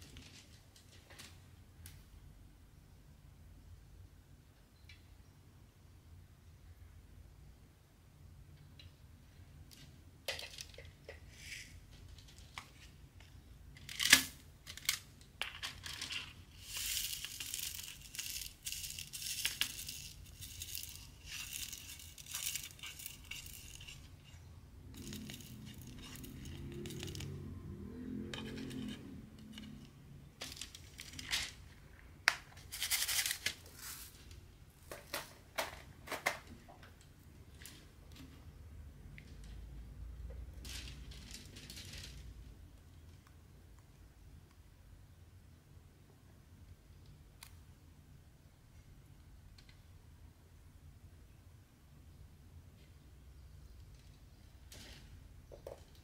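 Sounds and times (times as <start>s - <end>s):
faint low hum: 0.0s - 56.0s
rustling and scraping: 9.8s - 36.8s, 39.2s - 42.6s.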